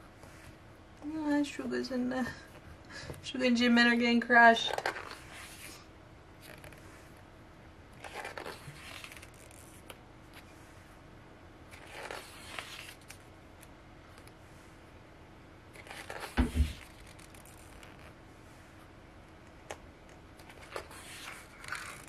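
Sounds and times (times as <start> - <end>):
paper pages turning: 4.6 - 5.8, 6.4 - 7.2, 8.0 - 10.5, 11.7 - 14.4, 15.7 - 18.1, 20.4 - 22.0.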